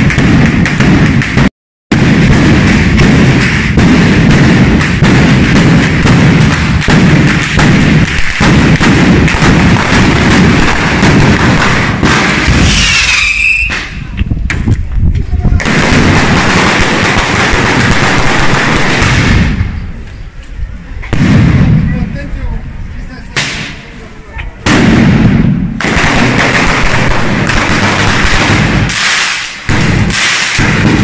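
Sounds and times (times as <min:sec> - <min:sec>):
firecrackers crackling: 0:00.0 - 0:31.0
short whistle: 0:12.7 - 0:14.0.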